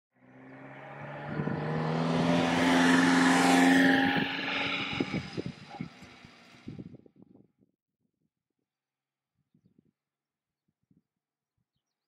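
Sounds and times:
van driving past: 0.2 - 6.8.

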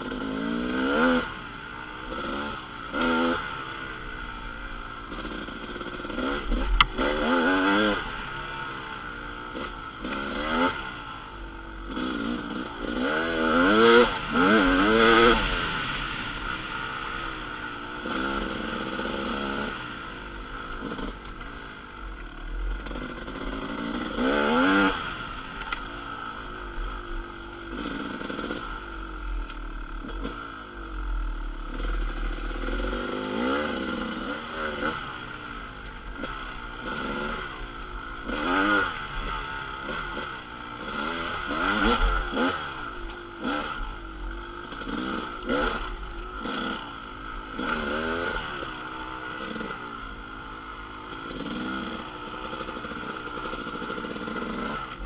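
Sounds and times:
dirt bike engine revving: 0.0 - 55.0.

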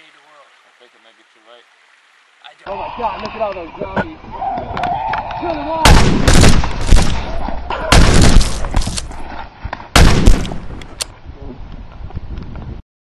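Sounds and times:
gunfire volleys: 5.8 - 9.1, 10.0 - 11.0.

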